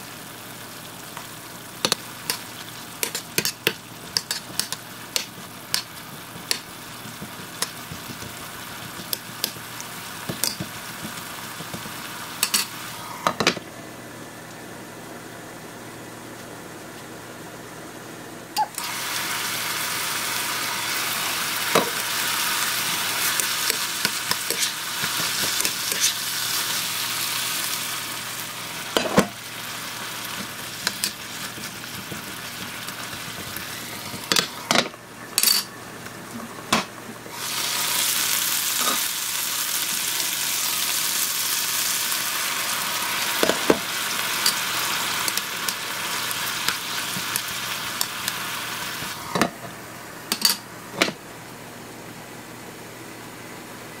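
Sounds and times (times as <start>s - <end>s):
food sizzling in a frying pan: 0.0s - 13.4s, 18.6s - 35.7s, 37.2s - 49.4s
spatula scraping a pan: 23.2s - 26.2s.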